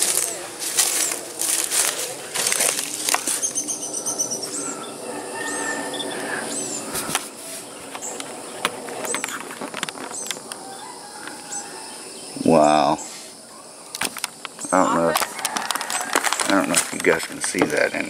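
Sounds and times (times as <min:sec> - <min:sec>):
footsteps in leaf litter: 0:00.0 - 0:03.7
small bird chirping: 0:00.1 - 0:15.0.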